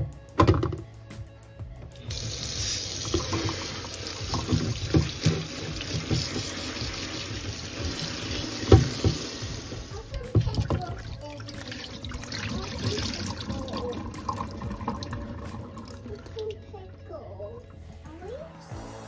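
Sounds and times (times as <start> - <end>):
tap water running into sink: 2.1 - 16.5.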